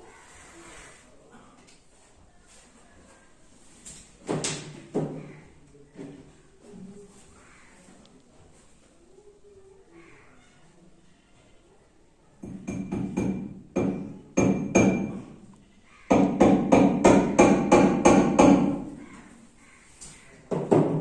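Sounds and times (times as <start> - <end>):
hammer striking nail: 12.4 - 15.3, 16.1 - 18.8.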